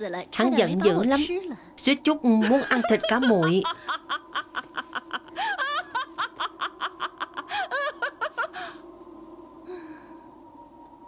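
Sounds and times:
faint steady hum: 0:00.0 - 0:11.0
woman laughing mockingly: 0:02.4 - 0:08.8.

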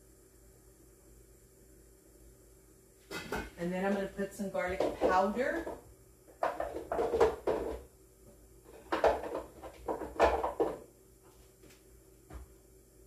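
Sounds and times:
spice containers clattering: 0:06.4 - 0:07.8.

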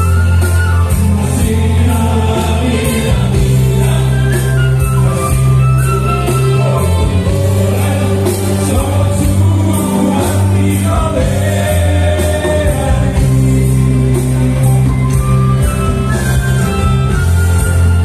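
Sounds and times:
live band playing: 0:00.0 - 0:18.0
men singing in harmony: 0:00.8 - 0:14.7.

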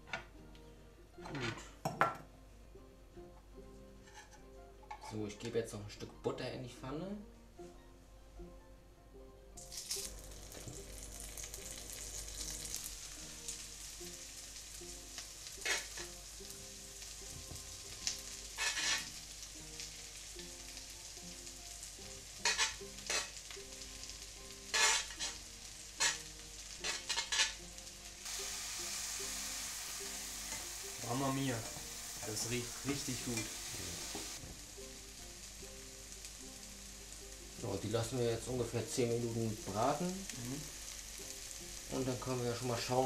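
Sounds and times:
spatula scraping and clattering: 0:04.0 - 0:05.2, 0:15.6 - 0:16.2, 0:18.6 - 0:19.2, 0:22.4 - 0:23.4, 0:24.7 - 0:25.4, 0:26.0 - 0:27.6
butter sizzling in frying pan: 0:09.6 - 0:43.0.

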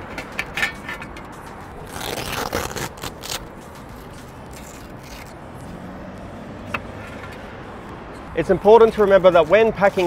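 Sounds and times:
hook-and-loop strips tearing apart: 0:01.8 - 0:05.4.

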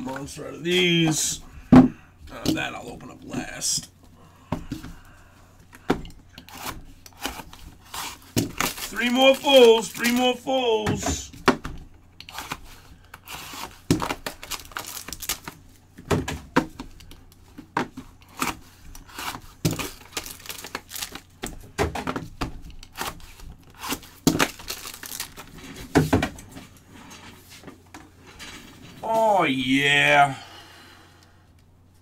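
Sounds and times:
wrappers torn and crinkled: 0:06.6 - 0:10.4, 0:13.2 - 0:15.6, 0:18.3 - 0:21.4, 0:22.8 - 0:25.6.

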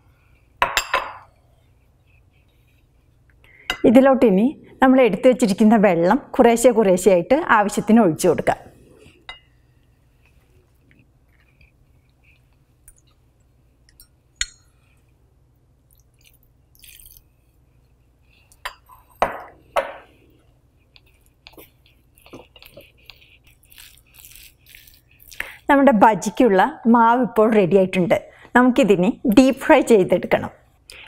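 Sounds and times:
batter squelching under whisk: 0:01.4 - 0:03.6, 0:08.8 - 0:19.2, 0:20.0 - 0:26.5.

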